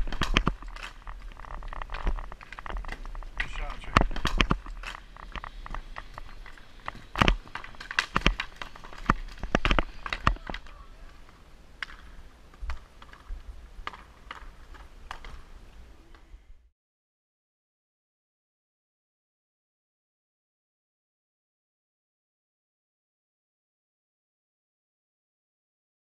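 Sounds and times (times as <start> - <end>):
sticks and puck clacking on wood floor: 0.0 - 15.5.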